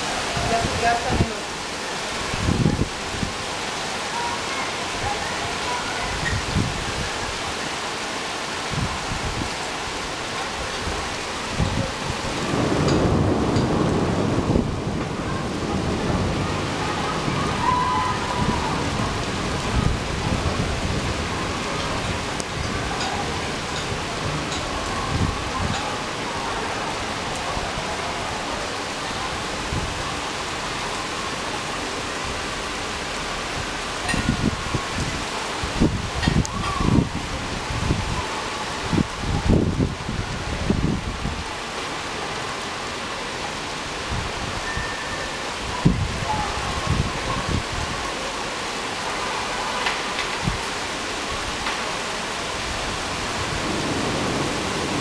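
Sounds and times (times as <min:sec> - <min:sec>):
rain on wet pavement: 0:00.0 - 0:55.0.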